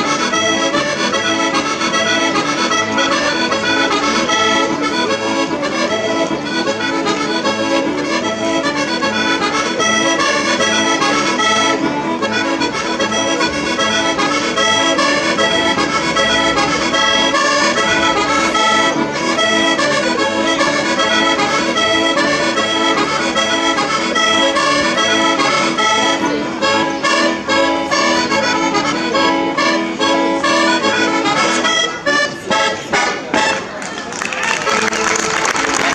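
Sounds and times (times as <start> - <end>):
accordion playing folk dance tune: 0.0 - 35.9.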